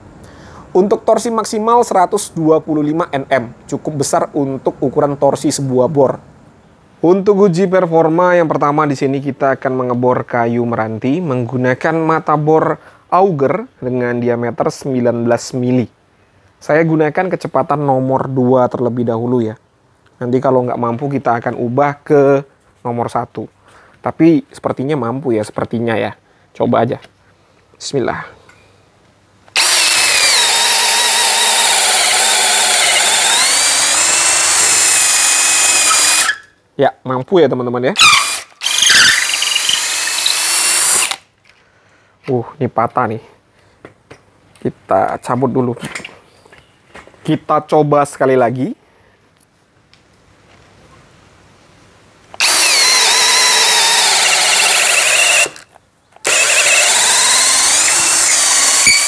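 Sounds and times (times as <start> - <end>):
drill motor whining under load: 29.5 - 36.5, 38.0 - 41.2, 52.4 - 59.0.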